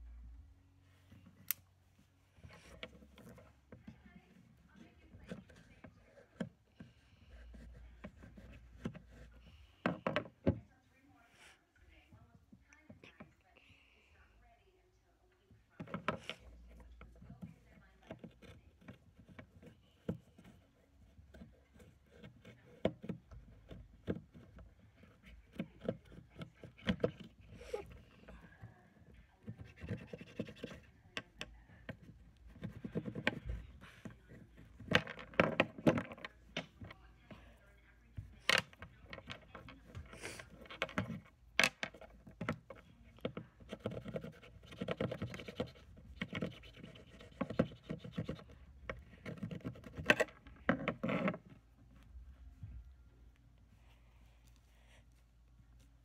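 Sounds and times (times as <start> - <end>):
knife scraping a pencil: 29.5 - 31.0, 43.6 - 48.6.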